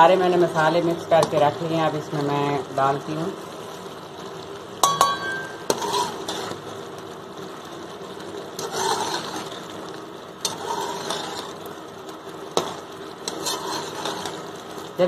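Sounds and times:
steady mechanical hum: 0.0s - 15.0s
metal spatula tapping a pan: 1.2s - 1.5s, 4.8s - 6.1s
metal spatula scraping a pan: 4.8s - 6.8s, 8.2s - 14.9s.

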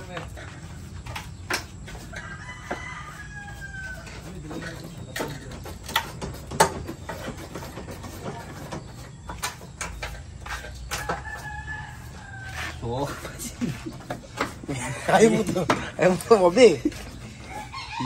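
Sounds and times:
sharp knocks and clatter: 1.0s - 3.0s, 4.1s - 11.5s
rooster crowing: 1.9s - 4.7s, 10.9s - 12.8s, 17.4s - 18.0s.

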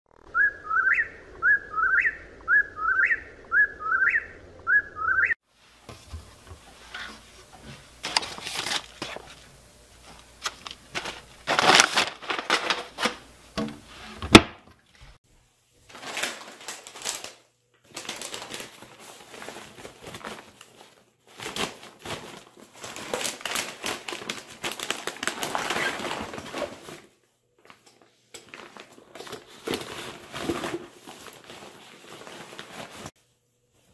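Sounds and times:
bird whistled song: 0.2s - 5.4s.

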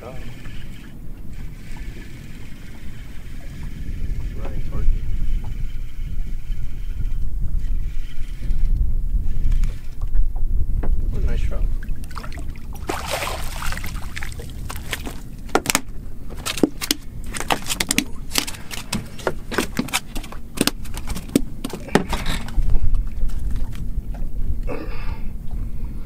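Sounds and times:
fish flopping on boat deck: 12.0s - 23.9s
fish splashing at surface: 12.1s - 15.2s.

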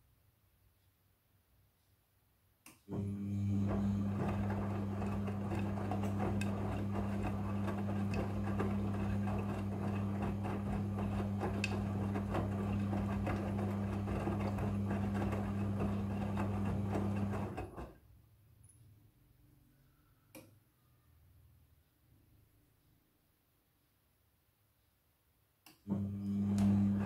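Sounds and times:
washing machine motor hum: 2.9s - 18.0s, 25.9s - 27.0s.

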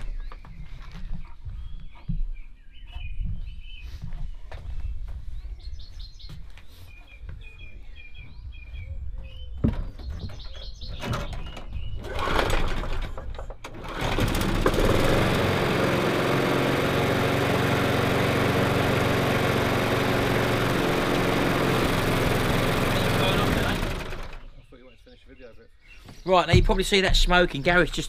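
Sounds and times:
birds chirping: 0.0s - 13.7s, 15.8s - 28.0s
lawnmower recoil starter pulls: 12.0s - 24.5s
lawnmower engine running: 12.0s - 24.6s.

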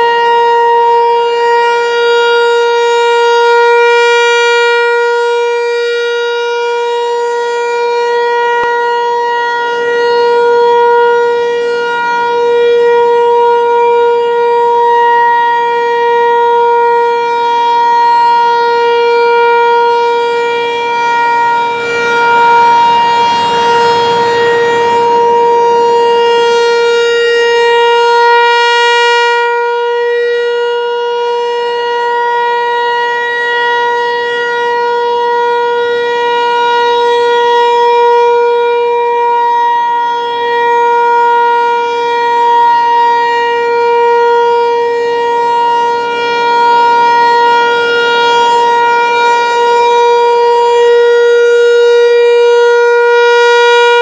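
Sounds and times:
electronic warning siren: 0.0s - 54.0s.

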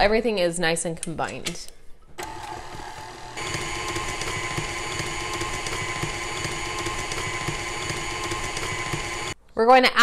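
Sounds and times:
stand mixer motor whirring: 2.2s - 9.4s.

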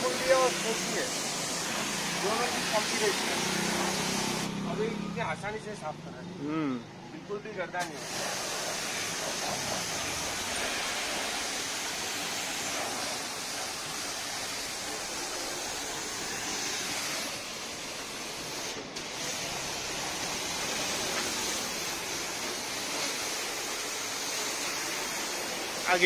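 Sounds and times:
pressure washer water jet spraying: 0.0s - 4.9s, 7.7s - 26.0s.

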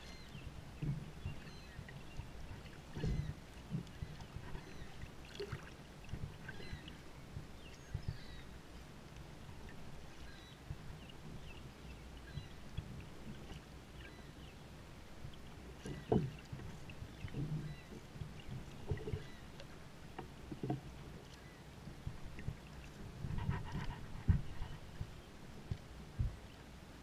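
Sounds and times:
paddle splashing in water: 0.0s - 8.6s, 15.3s - 21.5s
kayak hull moving through water: 0.0s - 27.0s.

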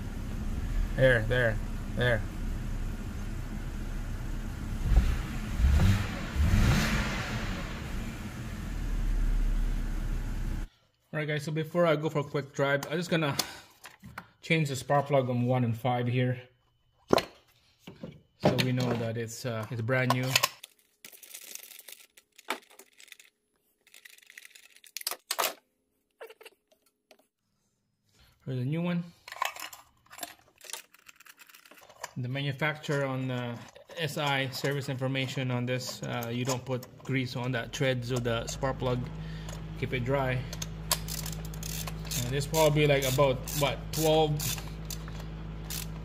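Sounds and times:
car engine idling: 0.0s - 10.7s, 37.2s - 46.0s.

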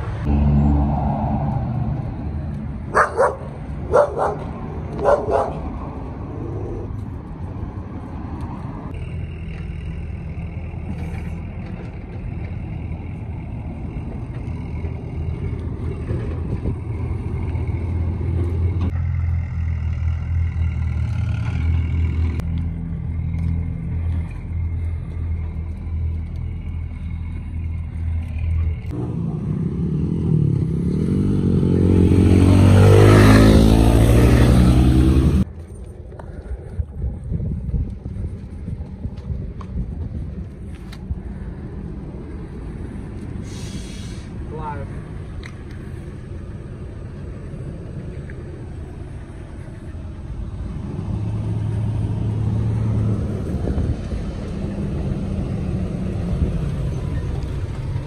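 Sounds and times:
motorcycle passing: 0.0s - 40.8s, 46.6s - 58.0s
vehicle engine running: 8.9s - 32.4s.

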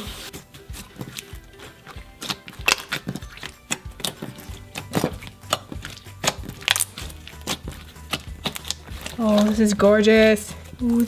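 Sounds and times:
slime kneaded with wet clicks: 1.0s - 9.5s.

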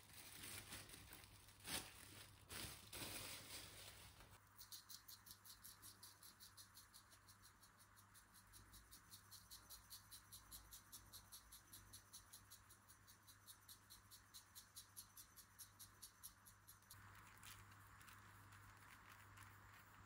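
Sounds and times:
faint rapid ticking: 4.4s - 20.0s.

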